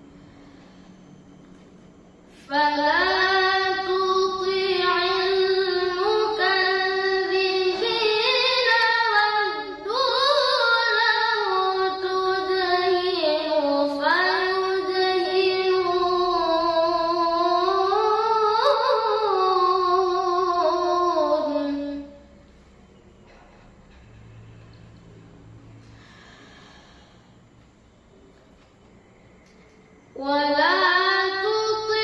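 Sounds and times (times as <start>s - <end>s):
boy reciting melodically: 2.4s - 22.3s, 30.1s - 32.0s.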